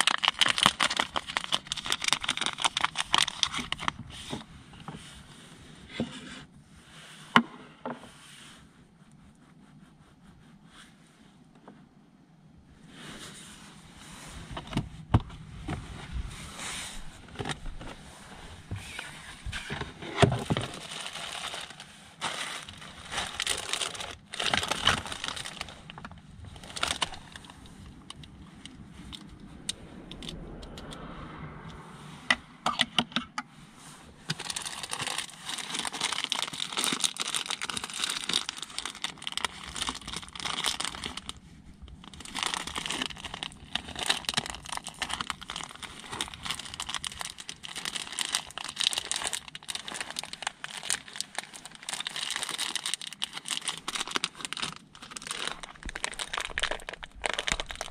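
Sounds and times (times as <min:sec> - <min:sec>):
plastic packaging crinkling: 0:00.0 - 0:04.2, 0:20.3 - 0:29.3, 0:34.3 - 0:57.9.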